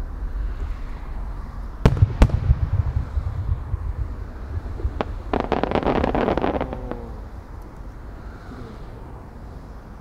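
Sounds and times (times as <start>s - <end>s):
wind rumble on microphone: 0.0s - 10.0s
firework shells bursting: 1.8s - 7.7s.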